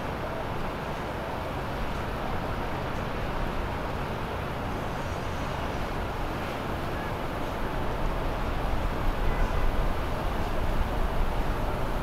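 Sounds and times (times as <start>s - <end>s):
boat engines droning: 0.0s - 12.0s.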